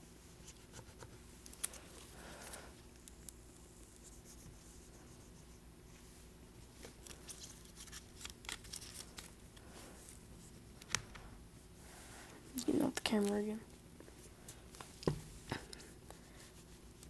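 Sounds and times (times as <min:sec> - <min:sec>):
steady low hum: 0:00.0 - 0:17.0
plastic film crinkling: 0:06.9 - 0:09.4.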